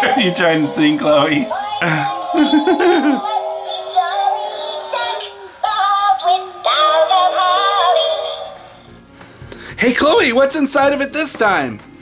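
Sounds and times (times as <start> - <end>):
toy singing synthetic melody: 0.0 - 8.6
music backing: 0.0 - 12.0.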